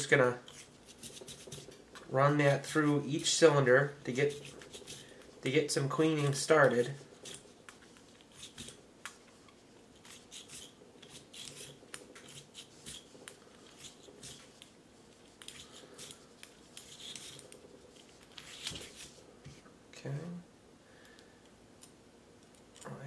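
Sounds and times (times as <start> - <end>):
bore brush scratching in metal: 2.4 - 8.8, 10.0 - 19.2.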